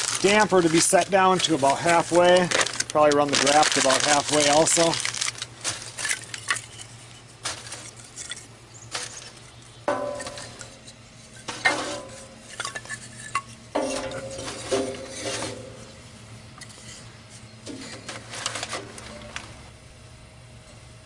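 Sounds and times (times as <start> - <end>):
wood sticks knocking on steel stove: 9.9 - 10.8
stove body ringing: 9.9 - 16.0.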